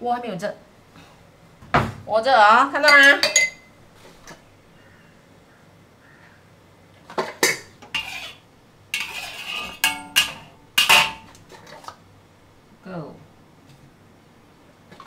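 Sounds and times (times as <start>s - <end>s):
kitchen utensils clinking and scraping: 2.9s - 3.6s, 7.1s - 11.9s.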